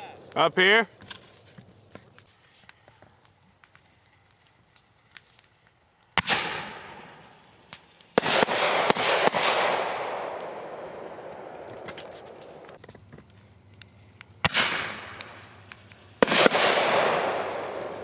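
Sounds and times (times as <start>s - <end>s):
fireworks bangs: 6.1s - 13.0s, 14.4s - 18.0s.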